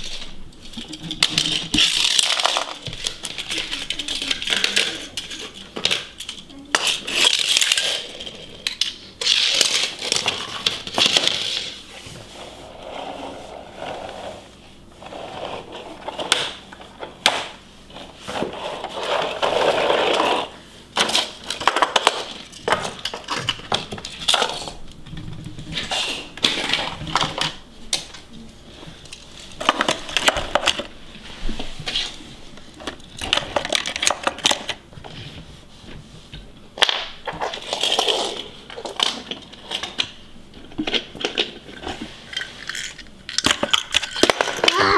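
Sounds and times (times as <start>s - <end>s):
toy cars clicking and clattering: 0.0s - 11.8s, 18.3s - 24.8s, 32.8s - 34.8s, 36.8s - 44.9s.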